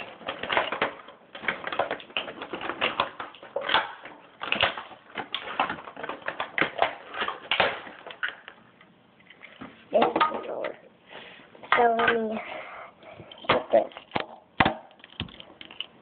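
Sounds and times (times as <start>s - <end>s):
plastic packaging crackling: 0.0s - 8.6s.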